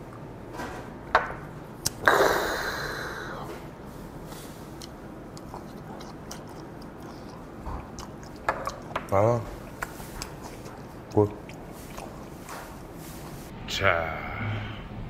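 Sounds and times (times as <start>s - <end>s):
breathy exhale: 2.0s - 3.7s
soft chewing: 3.2s - 13.5s.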